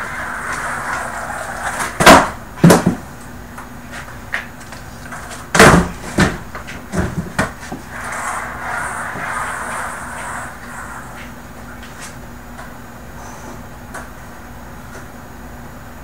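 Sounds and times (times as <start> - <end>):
skateboard knocks: 0.5 - 3.1, 5.1 - 8.2
skateboard landing on carpet: 0.5 - 3.1, 5.1 - 7.9.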